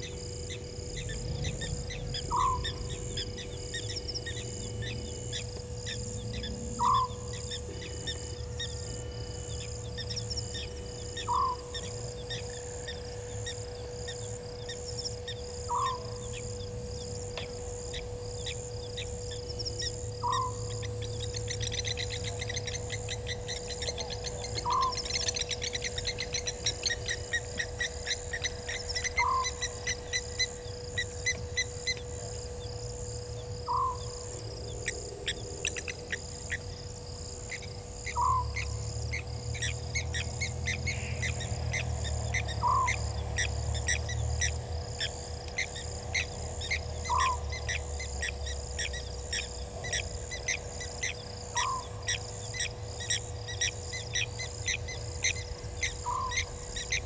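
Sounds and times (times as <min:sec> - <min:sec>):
insect chirps and clicks: 0:00.0 - 0:57.0
owl calling: 0:01.0 - 0:09.0, 0:09.6 - 0:32.4, 0:33.6 - 0:36.8, 0:37.5 - 0:57.0.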